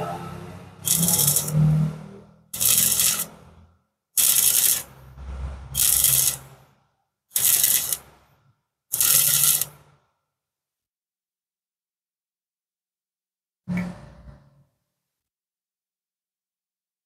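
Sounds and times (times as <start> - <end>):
welding arc crackling and hissing: 0.9 - 1.5, 2.6 - 3.3, 4.2 - 4.9, 5.8 - 6.4, 7.4 - 8.1, 9.0 - 9.8.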